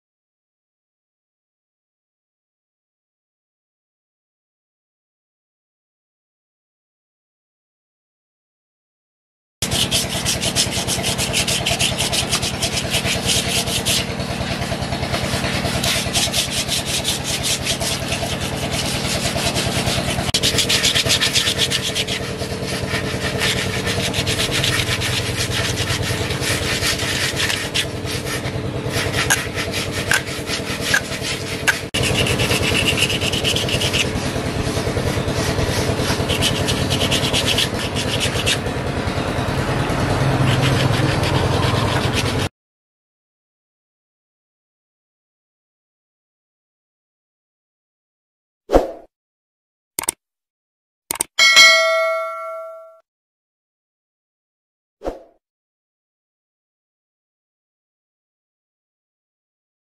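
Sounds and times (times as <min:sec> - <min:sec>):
sandpaper rubbing on wood: 0:09.6 - 0:38.6, 0:40.4 - 0:42.5.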